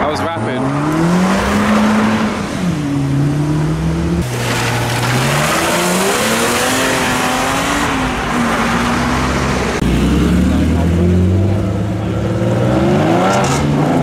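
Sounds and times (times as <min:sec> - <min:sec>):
car engines accelerating: 0:00.0 - 0:14.0.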